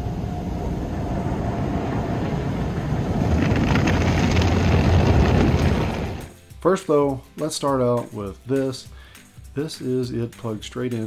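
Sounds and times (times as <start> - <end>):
car wash brushes spinning: 0.0 - 6.3
water spray on car: 0.2 - 6.3.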